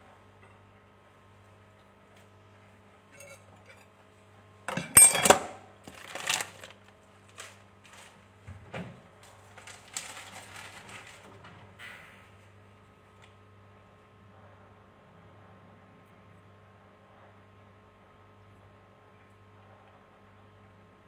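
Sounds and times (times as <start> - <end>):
light clinking and rustling: 3.1 - 3.9, 4.7 - 5.5
kitchen items clattering: 3.2 - 3.8, 4.7 - 6.8.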